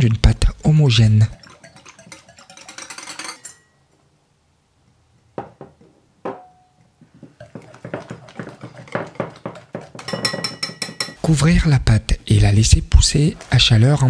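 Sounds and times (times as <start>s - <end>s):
quick steady whisking: 0.9s - 3.6s, 7.2s - 11.5s, 12.3s - 14.0s
whisk clinking against glass bowl: 1.2s - 3.7s, 7.4s - 11.3s.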